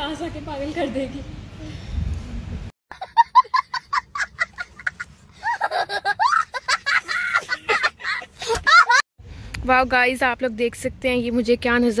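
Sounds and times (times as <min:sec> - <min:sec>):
boy laughing: 0:02.9 - 0:09.0.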